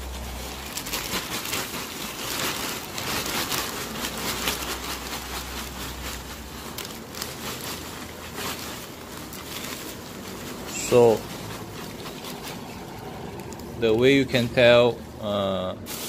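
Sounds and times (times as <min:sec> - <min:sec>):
packing peanuts rattling into box: 0:00.0 - 0:14.8
plastic bag rustling: 0:00.0 - 0:16.0.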